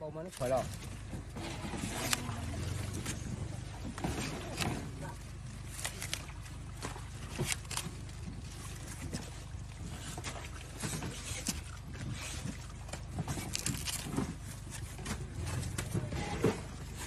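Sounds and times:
steady low hum: 0.0s - 17.0s
knife cutting banana stalk: 1.9s - 2.4s.

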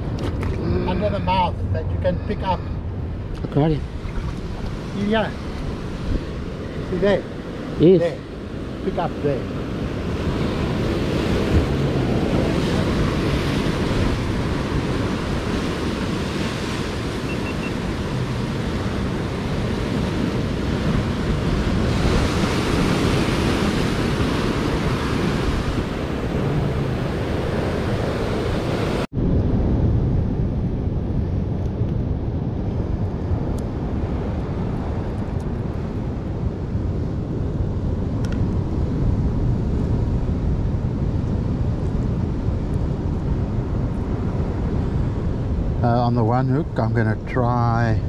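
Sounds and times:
wind rumbling on microphone: 0.0s - 48.0s
sea waves breaking on shore: 3.1s - 29.1s.

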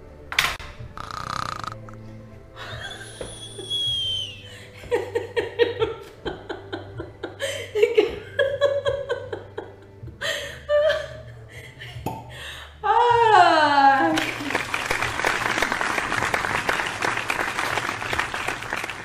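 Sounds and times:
woman laughing hard: 2.6s - 12.0s.

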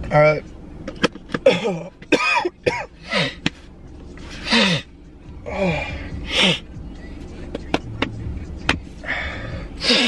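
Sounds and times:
man gasping and groaning: 4.4s - 6.7s, 9.0s - 10.0s
sharp breaths: 9.0s - 10.0s.

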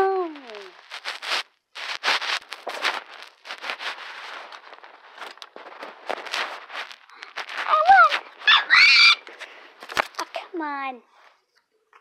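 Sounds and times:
paper rustling and scraping: 0.4s - 8.6s, 9.2s - 10.4s.

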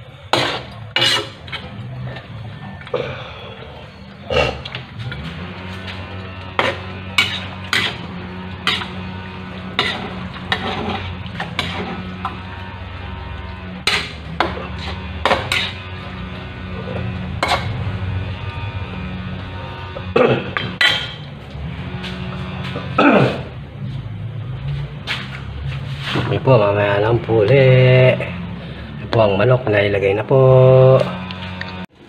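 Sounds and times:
metal spatula scraping a wok: 0.0s - 2.4s, 3.9s - 23.5s, 24.8s - 26.6s
steady low hum: 0.0s - 29.8s.

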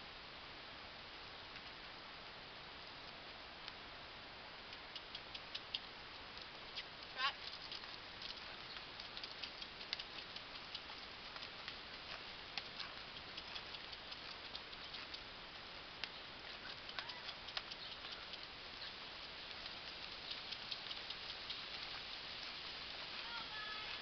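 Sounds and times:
steady hiss: 0.0s - 24.0s
horse hooves on sand: 4.7s - 24.0s.

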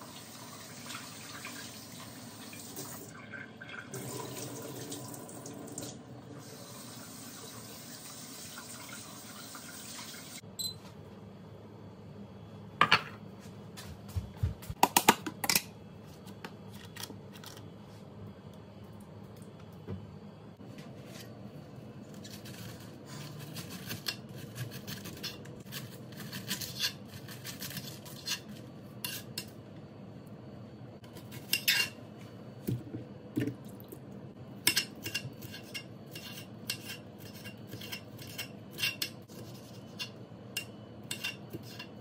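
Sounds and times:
faucet running into metal pot: 0.0s - 10.4s.

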